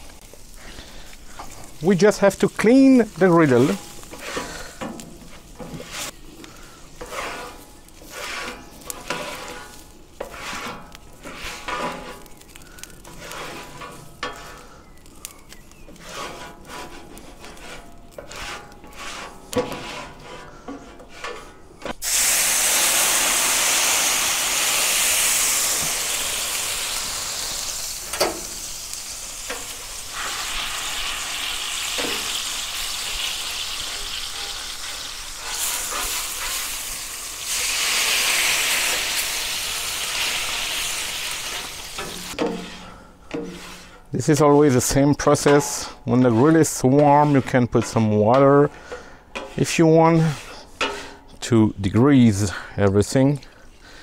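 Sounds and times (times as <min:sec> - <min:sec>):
scraper pushing food on griddle: 0:04.1 - 0:06.2, 0:07.0 - 0:14.7, 0:15.9 - 0:21.6, 0:33.9 - 0:36.9, 0:37.5 - 0:44.0, 0:45.4 - 0:47.6
steam hissing on hot plate: 0:22.0 - 0:42.4.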